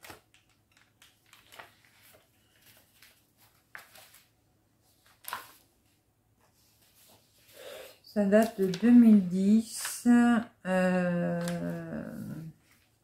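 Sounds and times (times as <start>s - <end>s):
light paper clicks: 0.0s - 4.3s, 5.0s - 5.7s
paper rustling: 0.0s - 10.2s, 11.2s - 13.0s.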